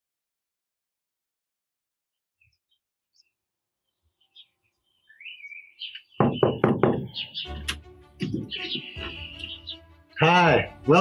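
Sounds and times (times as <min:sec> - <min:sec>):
birds chirping: 0:02.4 - 0:11.0
knocks on a door: 0:06.2 - 0:07.2, 0:08.2 - 0:08.9
music: 0:06.2 - 0:11.0.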